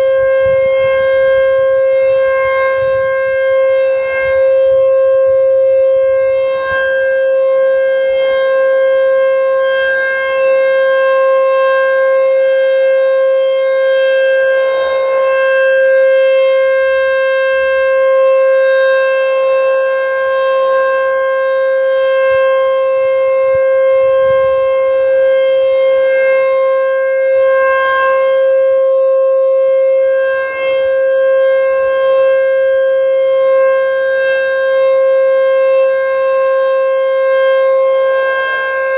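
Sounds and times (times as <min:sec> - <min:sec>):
warning siren steady tone: 0:00.0 - 0:38.9.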